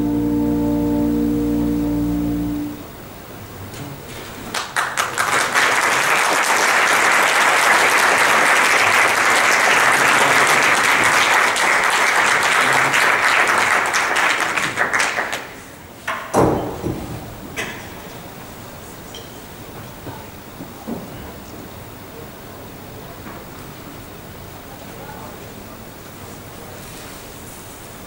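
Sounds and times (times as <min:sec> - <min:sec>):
audience applauding: 0:04.4 - 0:16.0.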